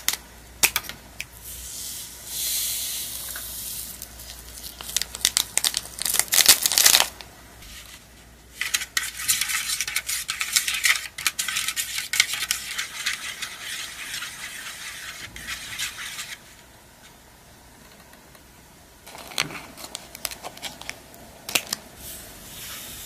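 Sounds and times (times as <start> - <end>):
foil packet crackling: 4.0 - 7.2, 19.1 - 21.8
plastic spoon stirring in tray: 7.6 - 16.6.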